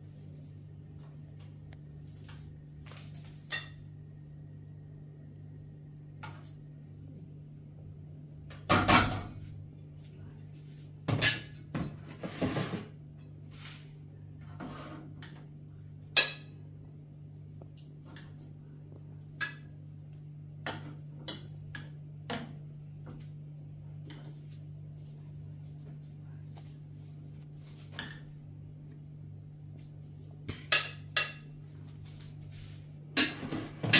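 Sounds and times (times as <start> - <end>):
steady low hum: 0.0 - 33.9
metal spoon clinking on pots: 16.1 - 16.6, 30.6 - 31.6.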